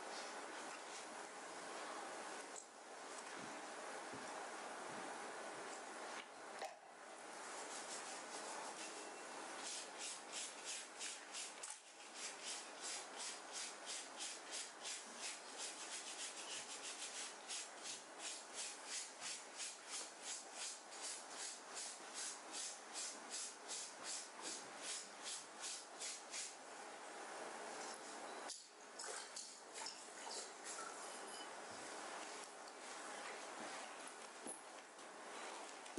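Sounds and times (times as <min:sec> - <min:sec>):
brush scrubbing wet fabric: 0:07.4 - 0:26.6, 0:31.8 - 0:34.4.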